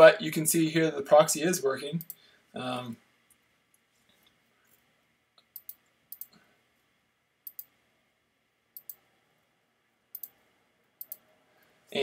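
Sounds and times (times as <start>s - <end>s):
computer mouse clicks: 5.4s - 6.4s, 7.4s - 7.7s, 8.8s - 9.0s, 10.1s - 10.4s, 11.0s - 11.2s.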